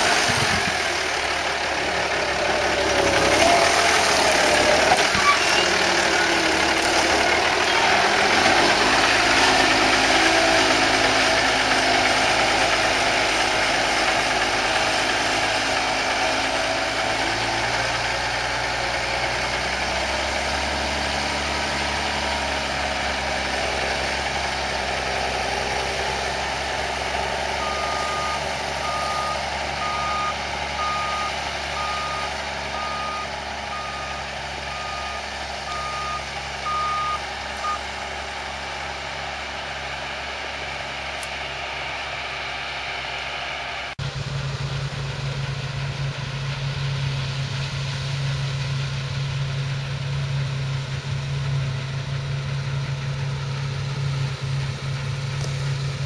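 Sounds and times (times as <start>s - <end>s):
tractor engine running under load: 0.0s - 56.0s
reversing alarm beeps: 27.6s - 37.8s.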